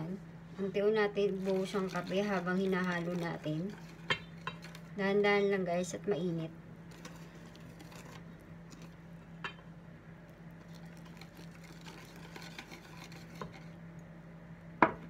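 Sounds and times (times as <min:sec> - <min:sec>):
steady low hum: 0:00.0 - 0:15.0
whisk stirring batter in a bowl: 0:01.0 - 0:04.9, 0:06.9 - 0:09.0, 0:10.6 - 0:13.8.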